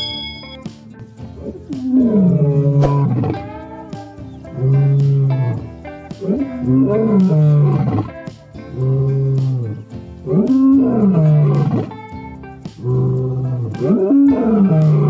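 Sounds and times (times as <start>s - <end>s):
guitar music: 0.0s - 15.0s
lion roaring: 1.4s - 3.9s, 4.5s - 5.6s, 6.2s - 11.9s, 12.8s - 15.0s.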